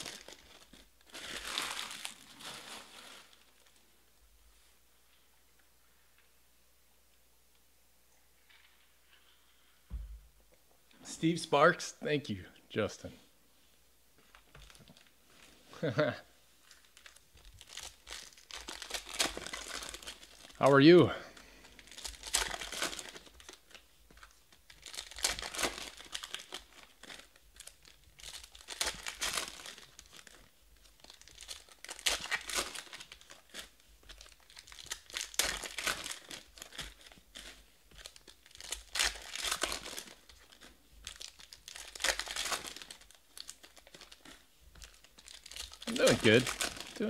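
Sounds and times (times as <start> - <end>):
foil wrappers crinkling and tearing: 0.0 - 3.8, 14.3 - 15.1, 15.8 - 47.0.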